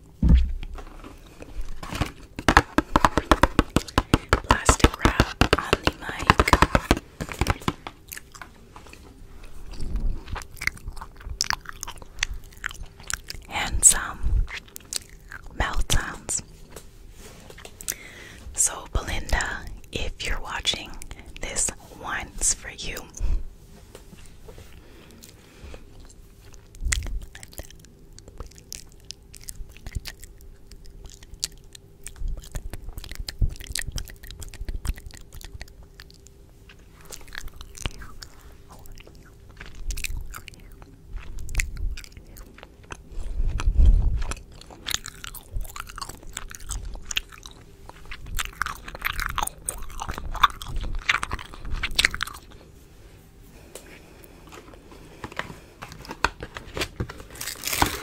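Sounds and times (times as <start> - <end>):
soft thumps on microphone: 0.2 - 0.7
wet mouth clicks and lip smacks: 26.0 - 36.3.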